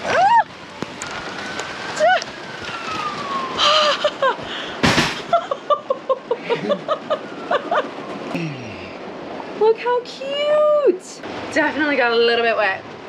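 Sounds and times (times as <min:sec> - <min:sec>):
excited laughter: 0:03.6 - 0:04.4, 0:05.2 - 0:08.0
short bang: 0:04.8 - 0:05.3.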